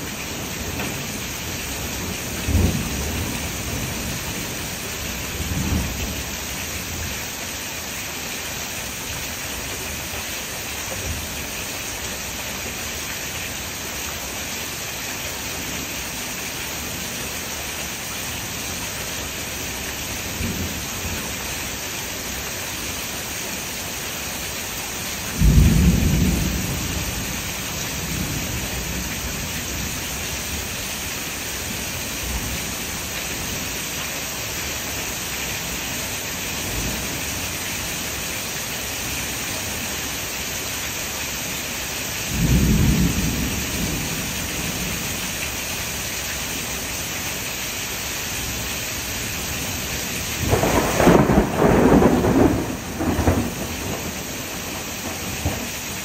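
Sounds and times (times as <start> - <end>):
steady rain falling: 0.0 - 56.0
loud thunder claps: 50.4 - 55.8
distant thunder rumbles: 50.4 - 56.0.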